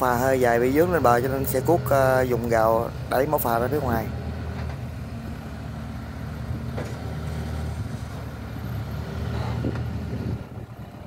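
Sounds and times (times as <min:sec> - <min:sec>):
excavator diesel engine: 0:00.0 - 0:11.0.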